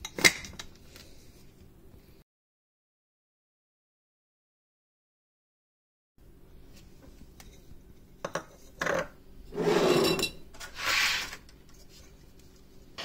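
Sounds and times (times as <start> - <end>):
spoon scraping in glass jar: 9.5 - 11.2.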